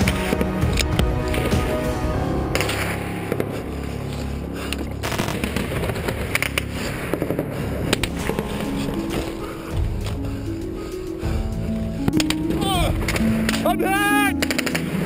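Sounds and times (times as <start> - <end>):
rifle shots cracking: 5.0 - 7.4.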